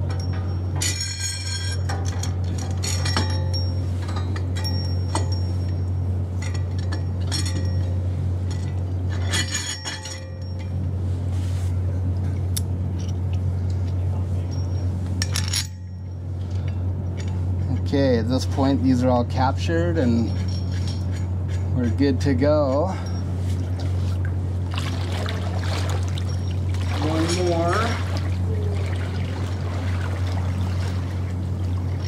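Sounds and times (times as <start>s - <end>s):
bolts clinking on steel plate: 0.0s - 10.8s, 14.5s - 17.9s
steady low hum: 0.0s - 32.0s.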